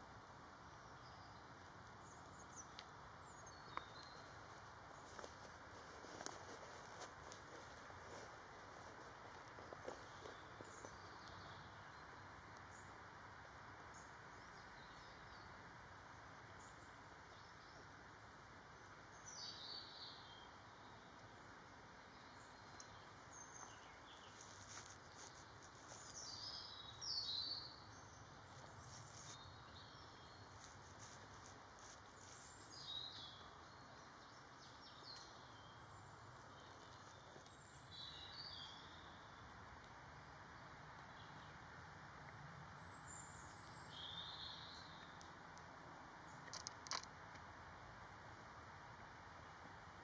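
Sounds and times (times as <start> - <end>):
low hiss: 0.0 - 50.0
small birds calling: 0.8 - 13.1, 22.0 - 39.6.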